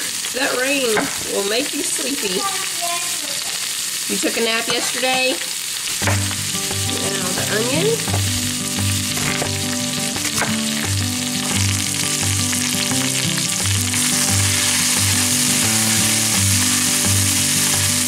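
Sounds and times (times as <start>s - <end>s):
potatoes sizzling in hot oil: 0.0s - 18.0s.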